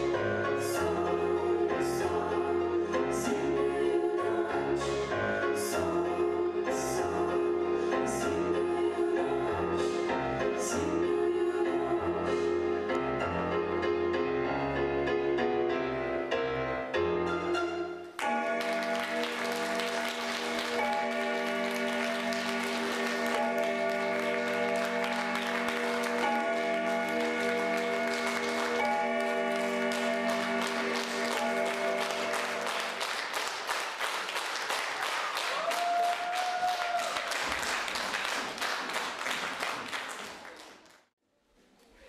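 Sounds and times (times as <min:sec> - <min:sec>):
audience clapping: 0:18.2 - 0:41.1.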